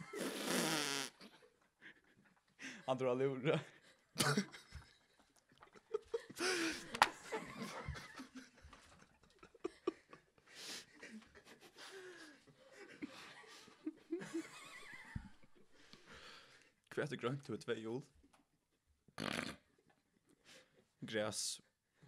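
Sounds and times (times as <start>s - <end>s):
people laughing and chuckling: 3.8s - 15.7s.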